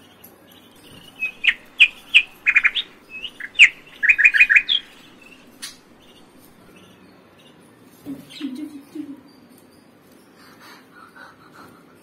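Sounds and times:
budgerigars chirping: 0:00.6 - 0:07.6.

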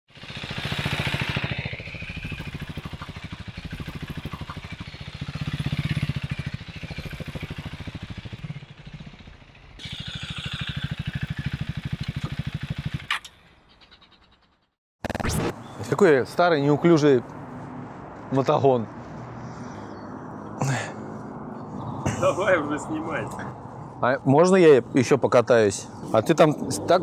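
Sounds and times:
motorcycle engine pulsing: 0:00.1 - 0:15.7.

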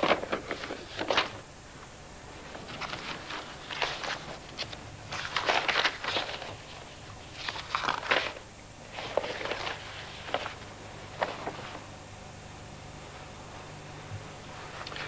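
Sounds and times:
paper rustling: 0:00.0 - 0:01.4, 0:02.5 - 0:11.9, 0:14.6 - 0:15.0
faint low hum: 0:00.0 - 0:15.0.

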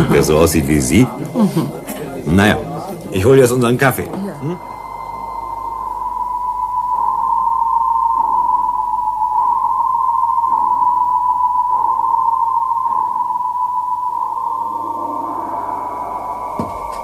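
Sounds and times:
high electronic tone: 0:01.8 - 0:17.0.

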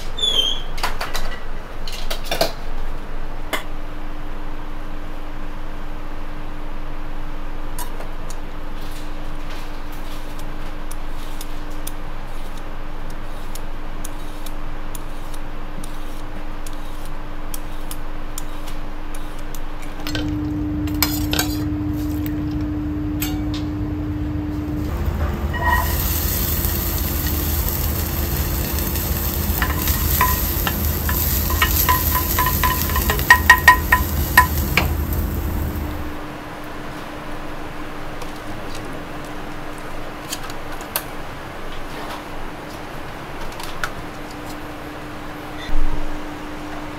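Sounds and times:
peas sizzling in saucepan: 0:24.6 - 0:36.2
peeler scraping asparagus: 0:25.6 - 0:35.9
wooden spatula stirring: 0:25.6 - 0:36.0
spoon clinking in metal bowl: 0:29.6 - 0:34.7
spatula knocking against pan: 0:29.6 - 0:34.9.

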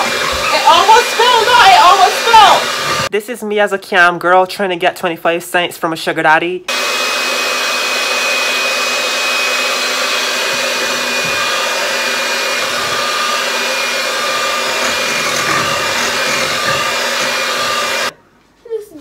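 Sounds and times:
electric hand mixer whirring: 0:00.0 - 0:03.1, 0:06.7 - 0:18.2.

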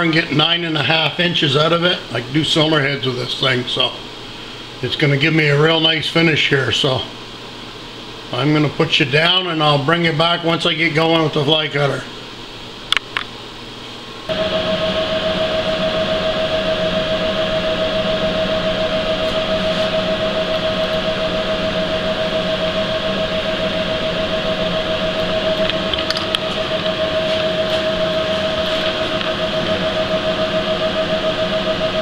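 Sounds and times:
milling machine cutting metal: 0:14.3 - 0:32.0.

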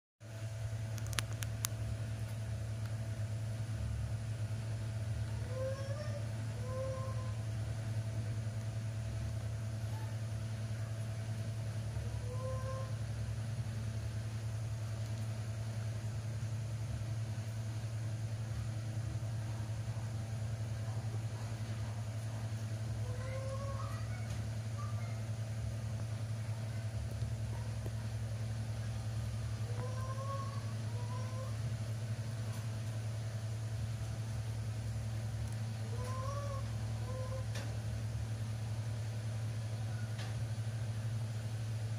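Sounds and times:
low machine hum: 0:00.2 - 0:41.9
baby monkey cooing: 0:05.4 - 0:07.4, 0:12.0 - 0:13.0, 0:23.0 - 0:25.3, 0:29.6 - 0:31.6, 0:35.9 - 0:37.6
faint short high calls: 0:23.0 - 0:25.3.

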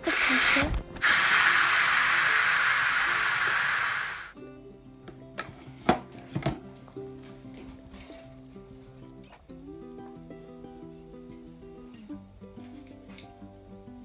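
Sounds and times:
steam venting hiss: 0:00.0 - 0:04.4
background music: 0:04.3 - 0:14.0.

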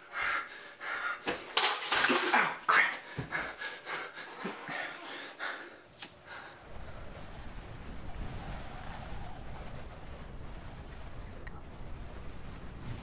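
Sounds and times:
person breathing hard: 0:00.0 - 0:01.6, 0:02.7 - 0:06.7.

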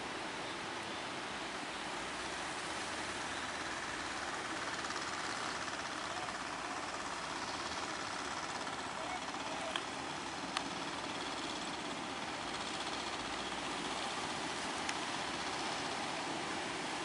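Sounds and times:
waves rushing: 0:00.0 - 0:17.0
boat engine running: 0:01.5 - 0:17.0.

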